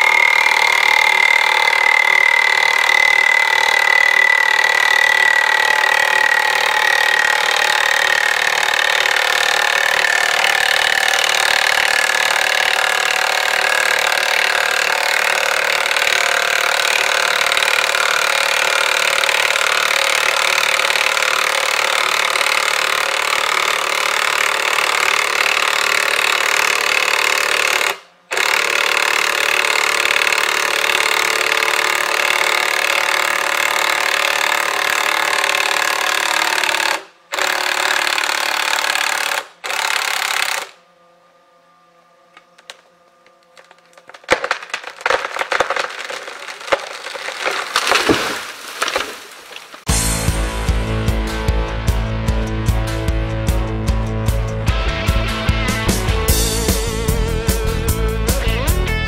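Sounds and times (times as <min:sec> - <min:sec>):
cordless drill running under load: 0:00.0 - 0:41.0.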